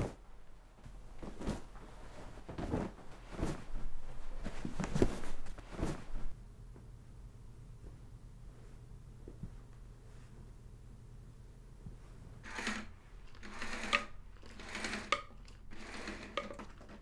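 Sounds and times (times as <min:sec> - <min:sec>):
clothes rustling: 0:00.0 - 0:06.4.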